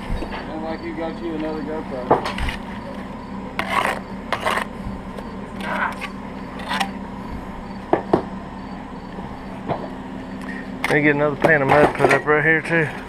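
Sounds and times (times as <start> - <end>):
trowel scraping brick: 2.2 - 3.0, 3.6 - 4.8.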